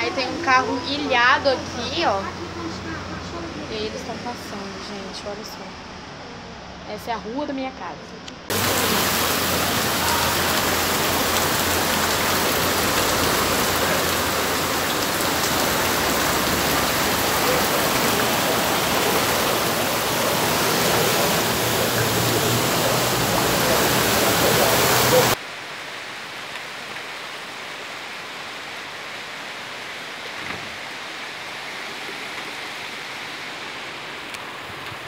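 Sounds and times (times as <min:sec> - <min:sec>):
heavy rain splashing into water: 0:08.5 - 0:35.0.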